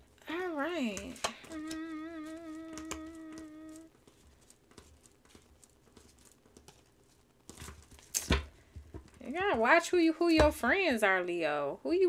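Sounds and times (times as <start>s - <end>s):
woman humming: 0.3s - 3.9s.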